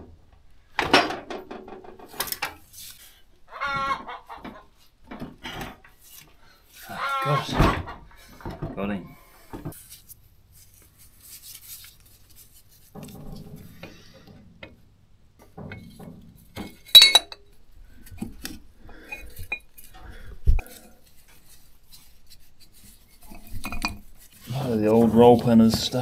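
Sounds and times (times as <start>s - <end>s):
metal parts clinking and tapping: 16.6s - 17.5s, 23.2s - 24.0s
sharp ringing metal clink: 17.0s - 17.4s.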